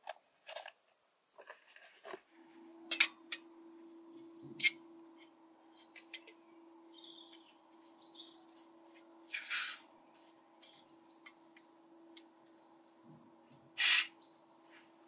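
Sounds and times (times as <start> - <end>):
birds chirping: 3.7 - 14.6.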